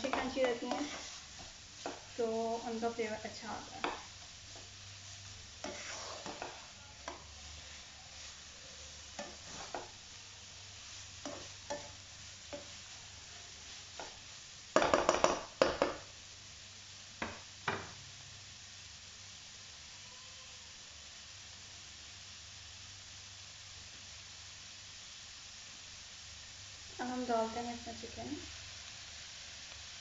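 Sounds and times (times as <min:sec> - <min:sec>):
spatula scraping a wok: 0:00.0 - 0:14.4
vegetables sizzling in oil: 0:00.0 - 0:30.0.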